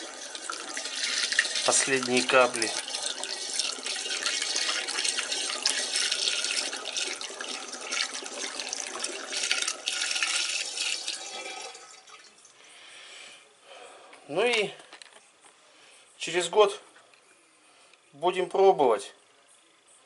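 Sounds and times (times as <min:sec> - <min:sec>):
liquid trickling into barrel: 0:00.0 - 0:12.6.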